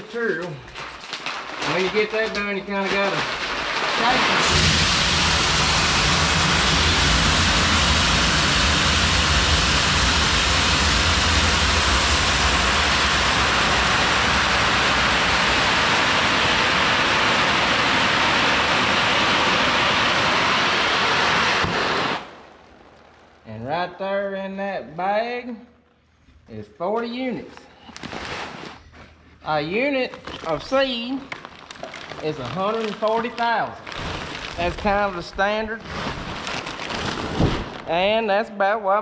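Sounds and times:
seed pouring from a bag: 0.1 - 19.9, 29.9 - 38.1.

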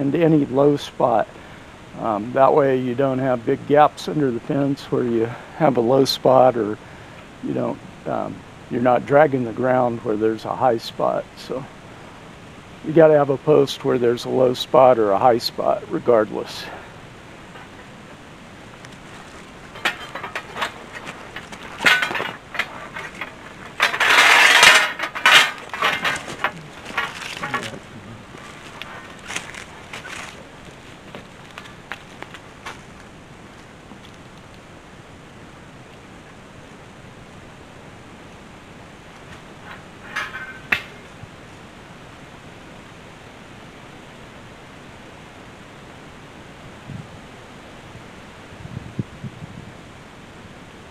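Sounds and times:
metal posts clanking: 17.5 - 17.9, 18.9 - 30.5, 39.3 - 41.2
rasping metal scrape: 19.1 - 27.8
wind noise on microphone: 46.6 - 50.8.

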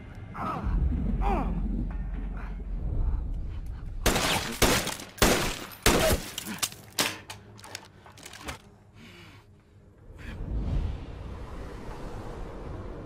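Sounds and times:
loud rifle shots: 4.0 - 6.3.

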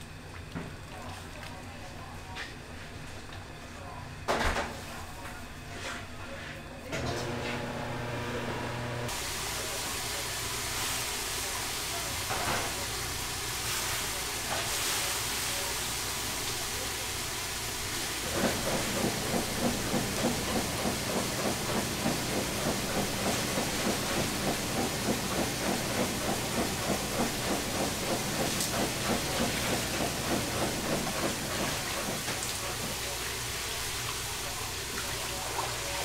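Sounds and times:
pot boiling hard: 7.3 - 36.0
hiss of flame and steam: 9.1 - 30.0.

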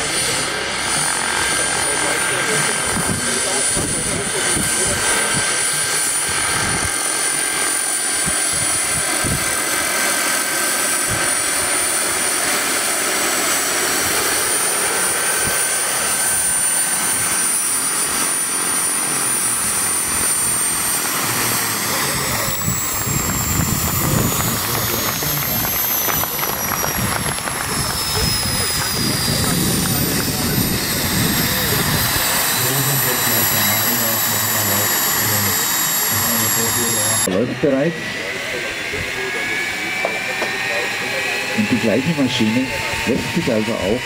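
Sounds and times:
high drive whine: 0.0 - 44.0
model helicopter rotor noise: 0.0 - 44.0.

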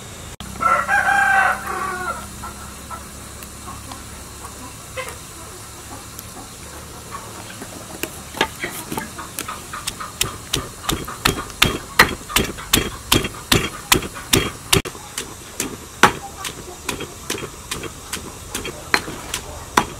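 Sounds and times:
pestle pounding in a mortar: 8.4 - 19.9.

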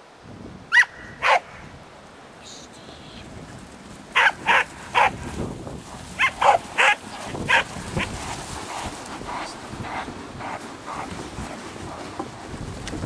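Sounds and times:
dog barking: 0.7 - 1.6, 4.2 - 5.2, 6.2 - 8.1.

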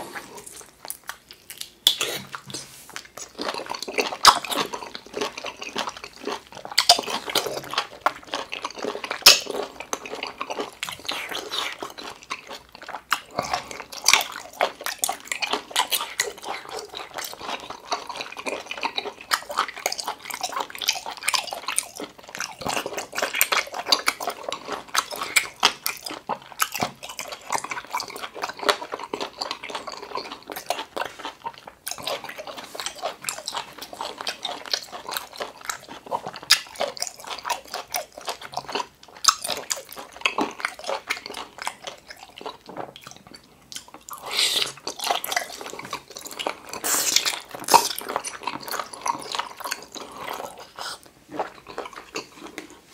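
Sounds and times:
wet chewing and mouth smacking: 0.0 - 52.9
slurp: 44.1 - 52.9.

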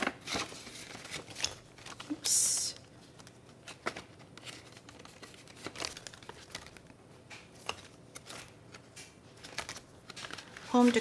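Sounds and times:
binder pages turning: 0.0 - 11.0
plastic and paper rustling: 0.0 - 11.0.

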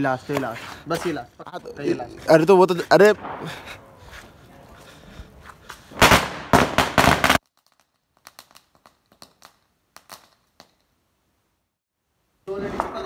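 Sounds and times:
firecrackers banging: 2.8 - 4.4, 5.8 - 10.7
faint crackles: 7.4 - 11.0.

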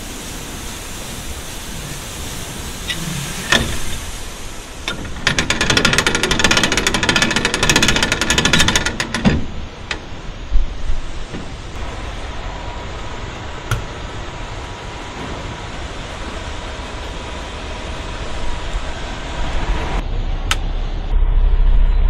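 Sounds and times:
grain pouring and hissing: 0.0 - 8.3
fast metallic rattle: 4.8 - 10.2
knocks: 4.9 - 10.1.

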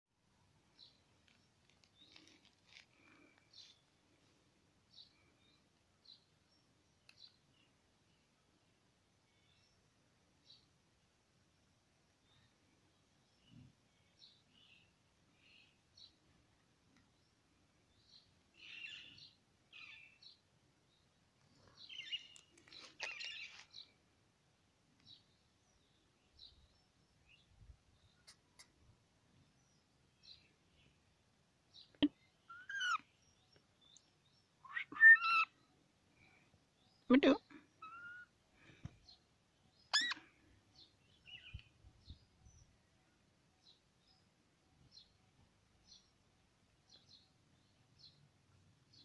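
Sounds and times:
parakeets chirping: 39.9 - 40.2.

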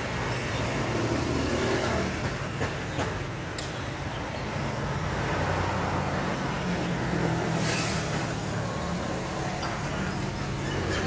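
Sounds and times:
short hiss of air: 7.5 - 8.4.

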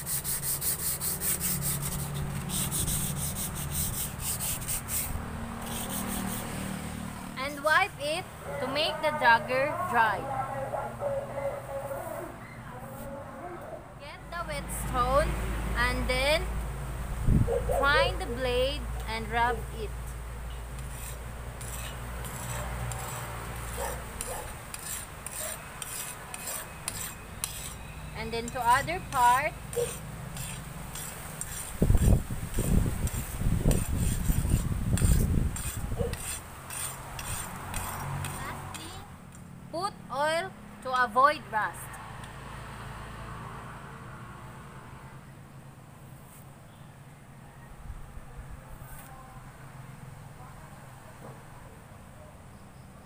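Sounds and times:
sandpaper scraping metal blade: 0.0 - 6.7, 20.8 - 38.9.

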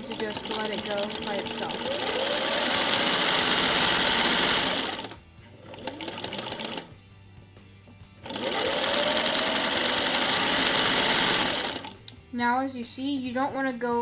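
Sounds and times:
sewing machine running: 0.0 - 7.0, 8.2 - 12.0.

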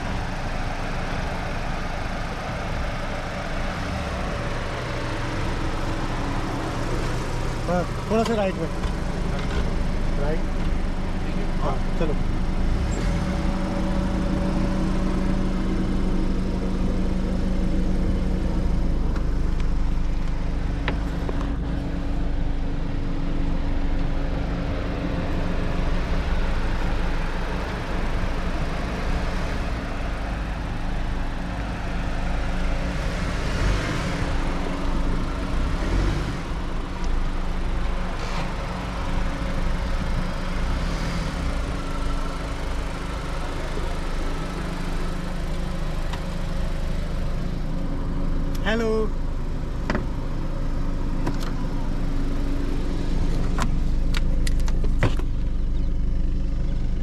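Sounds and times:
car engine running: 0.0 - 57.0.

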